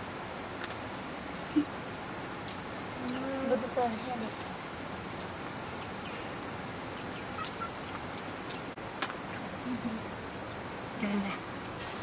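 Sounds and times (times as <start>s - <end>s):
background hiss: 0.0s - 12.0s
faint fowl calls: 7.0s - 7.9s.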